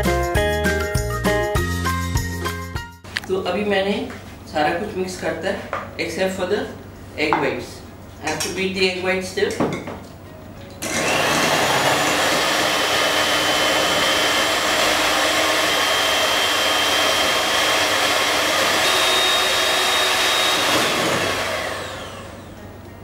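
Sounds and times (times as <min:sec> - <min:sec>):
electric hand mixer whine: 0:10.8 - 0:22.7.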